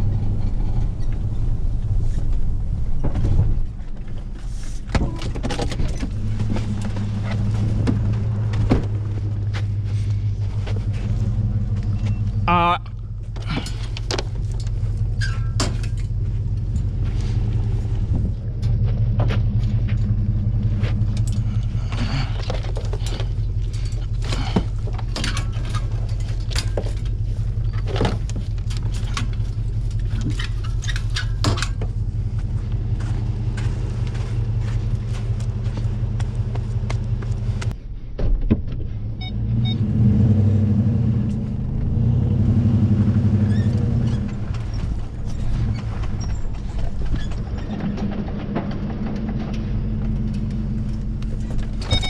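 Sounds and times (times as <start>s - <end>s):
pickup truck engine idling: 6.1s - 37.7s.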